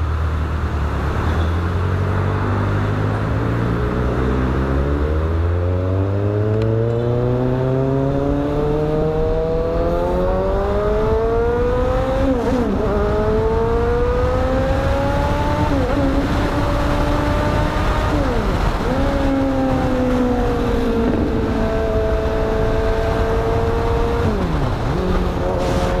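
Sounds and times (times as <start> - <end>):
motorcycle engine accelerating: 0.6 - 26.0
wind buffeting microphone: 8.0 - 26.0.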